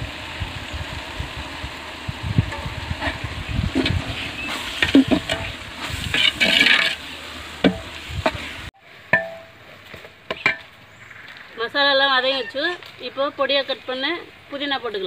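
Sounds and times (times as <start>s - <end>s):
oil sizzling: 0.0s - 9.7s
metal ladle scraping pot: 2.5s - 8.5s.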